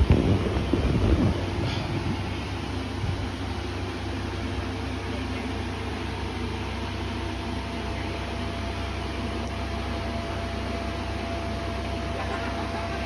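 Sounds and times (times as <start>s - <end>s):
inflation blower humming: 0.0s - 13.0s.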